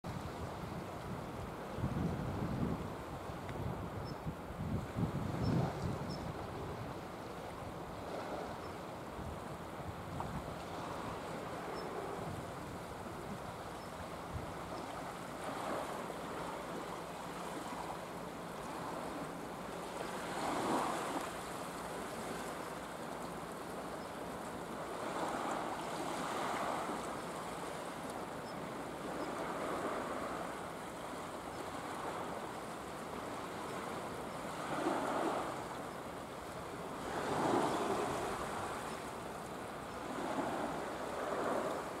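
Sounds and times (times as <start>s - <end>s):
small waves washing on rocks: 14.9s - 23.9s, 24.7s - 28.2s, 36.8s - 39.2s.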